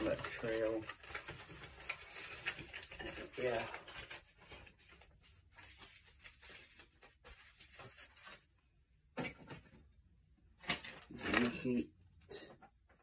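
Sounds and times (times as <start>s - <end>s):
package rustling and tearing: 0.0s - 8.5s, 10.6s - 11.8s.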